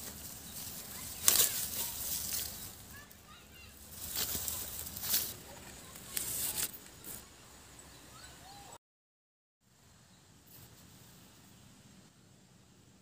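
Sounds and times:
leaves and grass rustling: 0.0s - 8.3s
faint bird chirps: 7.0s - 8.8s.

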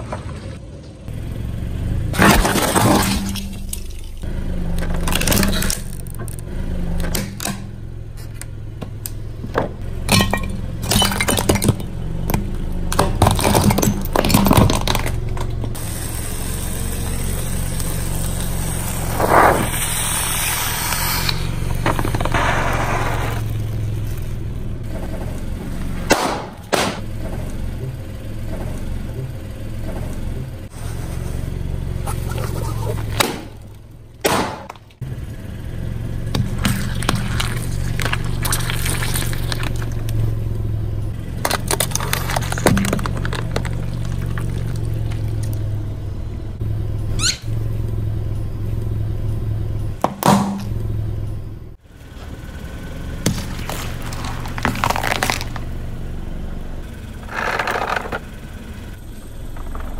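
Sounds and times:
car engine running: 0.0s - 59.9s
objects crackling under a tyre: 2.1s - 27.7s, 30.7s - 46.2s, 52.0s - 59.9s
short squeak: 47.0s - 47.6s.

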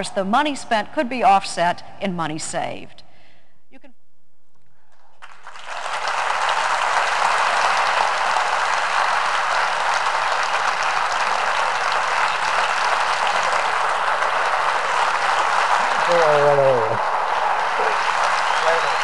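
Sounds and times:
audience applauding: 5.2s - 19.0s.

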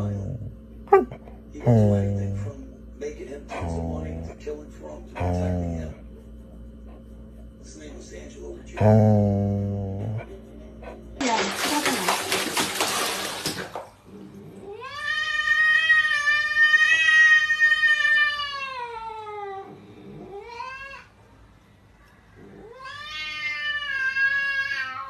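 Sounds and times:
water splashing in plastic basin: 11.2s - 14.0s
cat yowling: 14.7s - 19.7s, 22.6s - 25.0s.

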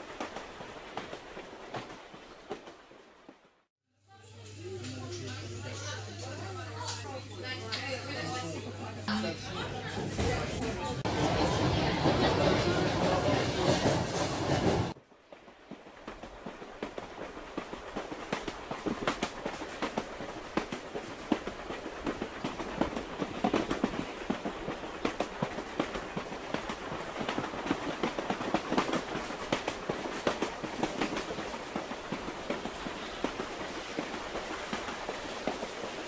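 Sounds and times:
train wheels clattering on rails: 0.0s - 2.8s, 10.0s - 36.0s
train rumbling: 0.0s - 3.4s, 9.1s - 36.0s.

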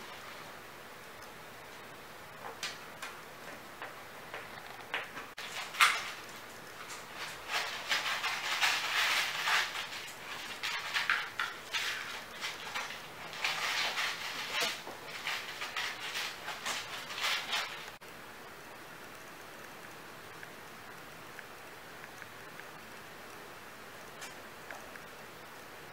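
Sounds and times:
claws scratching on plastic: 6.9s - 18.0s.

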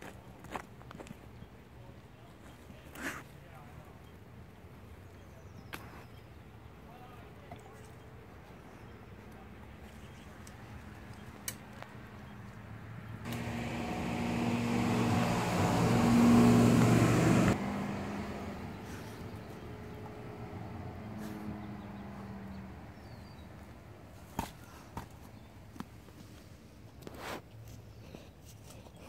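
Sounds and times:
vehicle engine passing by: 13.0s - 23.7s.

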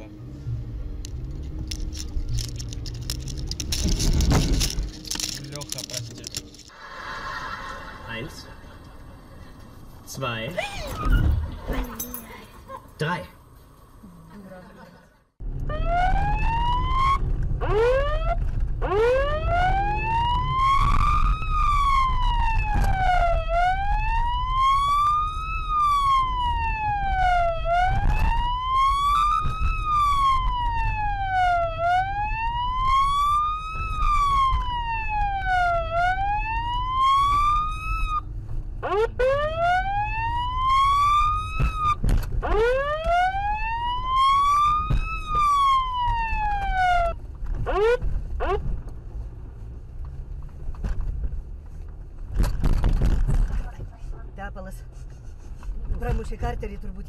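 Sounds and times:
engine and road rumble: 0.0s - 57.0s
emergency siren wailing: 15.4s - 48.7s.

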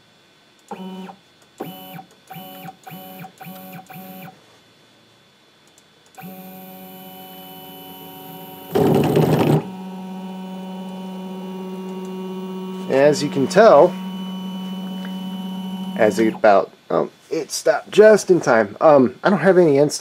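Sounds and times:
stepper motors whining: 6.2s - 16.7s.

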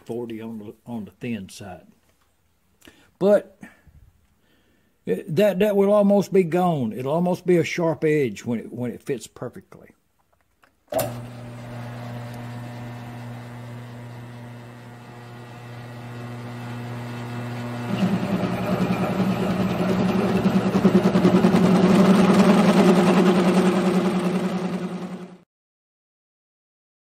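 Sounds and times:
end mill cutting steel tube: 10.9s - 25.4s
mill drill motor hum: 10.9s - 25.4s.

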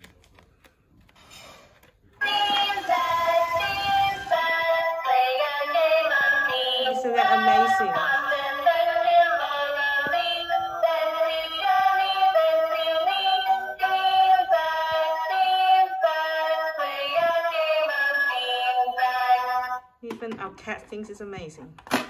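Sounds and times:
toy money box synthesized tune: 2.2s - 19.8s.

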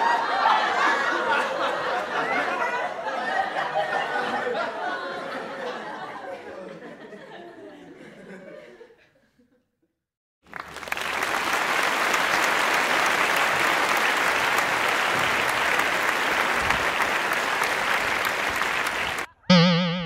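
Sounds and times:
applause: 10.4s - 19.3s.

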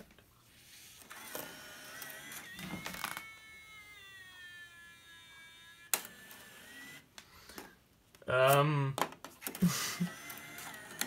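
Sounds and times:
disc drive motor whine: 0.8s - 7.7s, 9.6s - 11.0s.

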